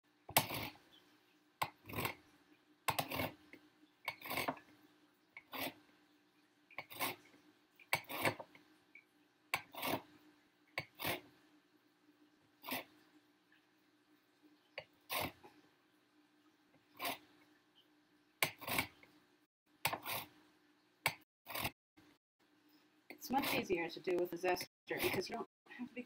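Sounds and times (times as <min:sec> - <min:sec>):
orange rind scraping on grater: 0:02.9 - 0:03.4, 0:04.1 - 0:04.6, 0:05.4 - 0:05.8, 0:06.8 - 0:07.3, 0:07.9 - 0:08.5, 0:09.6 - 0:10.1, 0:10.8 - 0:11.3, 0:15.1 - 0:15.4, 0:18.4 - 0:19.0, 0:23.2 - 0:23.7, 0:24.9 - 0:25.4.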